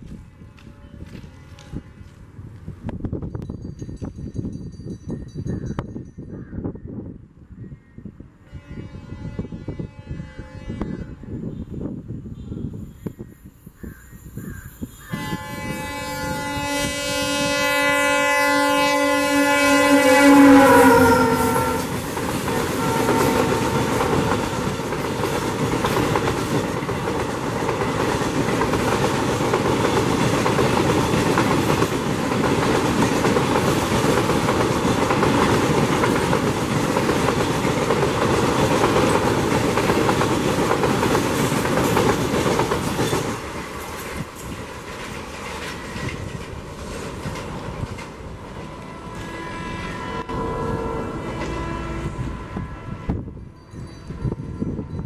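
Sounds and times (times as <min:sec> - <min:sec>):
locomotive horn blast: 0:08.4 - 0:11.6, 0:15.1 - 0:25.0, 0:48.6 - 0:53.6
wheels clattering on rail: 0:20.5 - 0:49.4.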